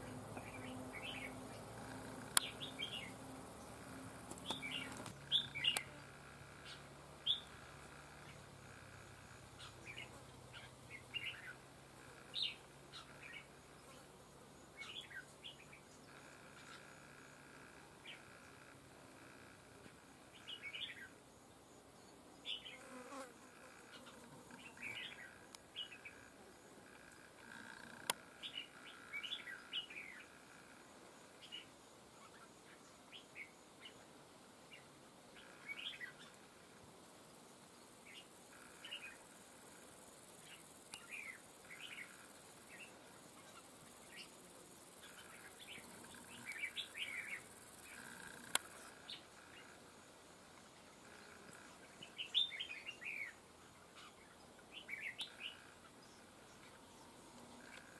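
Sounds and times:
birds chirping: 0:00.0 - 0:06.0, 0:06.6 - 0:07.6, 0:23.8 - 0:26.3, 0:40.2 - 0:49.8
faint insect buzz: 0:00.0 - 0:57.9.

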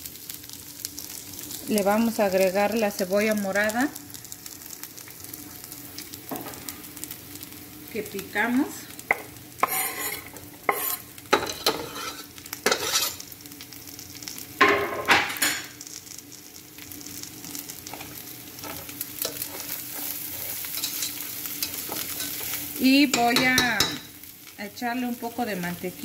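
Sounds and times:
food frying in oil: 0:00.0 - 0:26.0
spatula scraping in pan: 0:09.1 - 0:13.3, 0:17.8 - 0:24.0
scraping on cutting board: 0:09.6 - 0:13.2.

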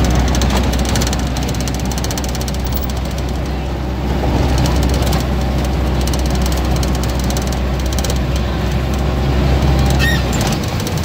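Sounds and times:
vehicle engine and road rumble: 0:00.0 - 0:11.0
brief high-pitched squeak: 0:10.0 - 0:10.5.

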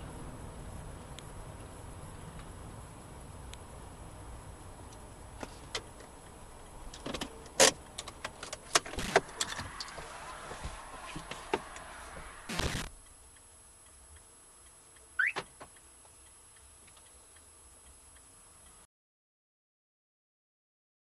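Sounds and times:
outside noise: 0:00.0 - 0:18.9
car slowing to stop: 0:08.6 - 0:12.6.

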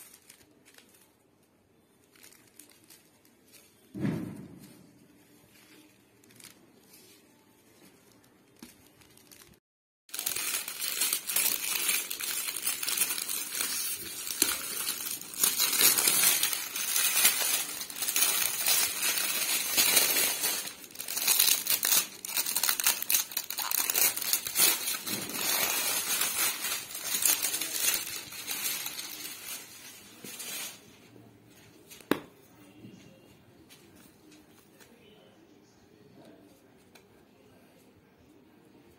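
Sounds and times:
foil gift wrap crinkling and tearing: 0:00.0 - 0:04.0, 0:04.9 - 0:31.2.

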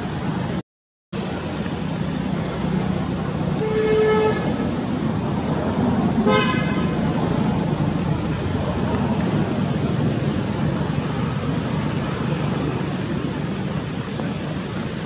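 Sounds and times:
steady traffic noise: 0:00.0 - 0:15.0
vehicle horn honking: 0:03.6 - 0:04.6, 0:06.2 - 0:07.0.

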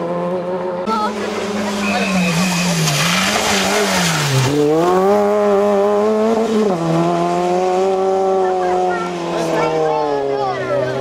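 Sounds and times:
rally car engine revving: 0:00.0 - 0:11.0
tyres hissing on wet road: 0:01.2 - 0:04.9.

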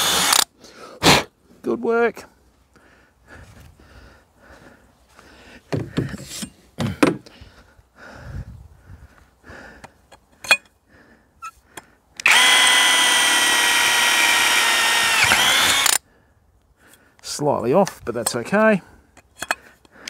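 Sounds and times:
cordless drill whining: 0:00.0 - 0:00.5, 0:12.2 - 0:16.0.

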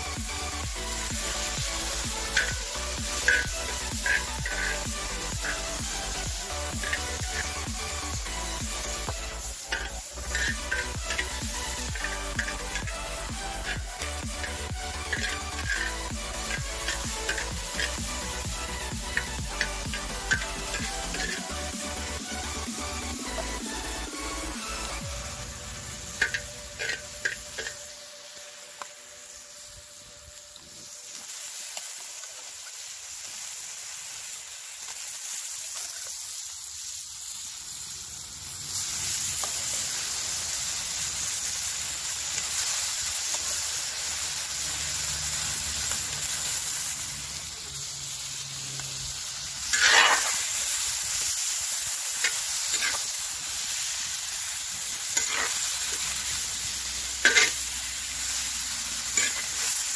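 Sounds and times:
food sizzling in hot oil: 0:00.0 - 0:59.9
metal spoon scraping pan: 0:02.2 - 0:05.8, 0:06.7 - 0:07.6, 0:09.7 - 0:13.0, 0:13.6 - 0:21.6, 0:26.2 - 0:27.8, 0:49.7 - 0:50.4, 0:52.2 - 0:53.1, 0:55.1 - 0:56.2, 0:57.2 - 0:57.7, 0:59.1 - 0:59.8.

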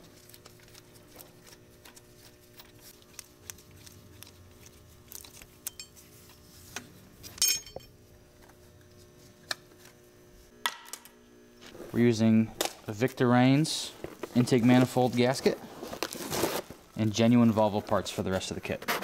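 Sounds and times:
faint steady hum: 0:00.0 - 0:19.0
metal bolts clinking: 0:07.2 - 0:07.9.

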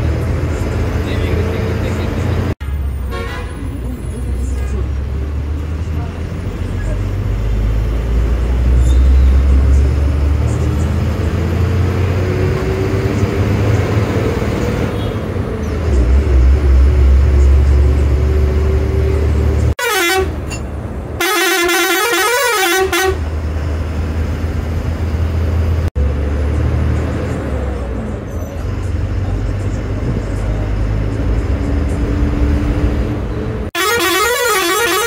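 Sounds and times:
bus engine droning: 0:00.0 - 0:35.0
bus horn blasts: 0:02.6 - 0:03.7, 0:19.8 - 0:20.6, 0:21.2 - 0:23.3, 0:33.7 - 0:35.0.

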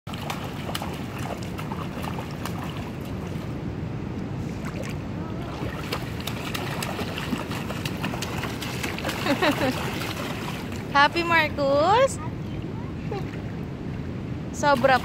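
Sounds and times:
child splashing in water: 0:00.1 - 0:03.4, 0:04.7 - 0:11.0
stream rushing: 0:00.1 - 0:15.0.

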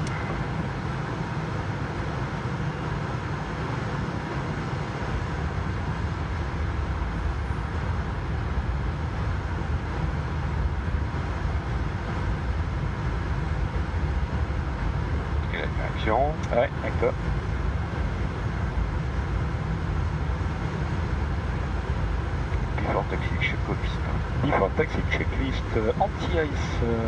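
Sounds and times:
aircraft engines idling: 0:00.0 - 0:27.0
cockpit rumble and hiss: 0:00.0 - 0:27.0.

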